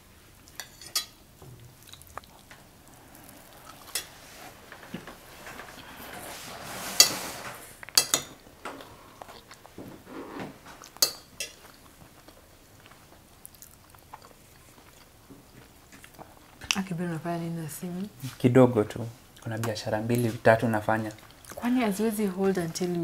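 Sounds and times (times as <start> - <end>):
spoons clinking against plates: 0.5 - 1.2, 7.9 - 8.4, 11.0 - 11.7.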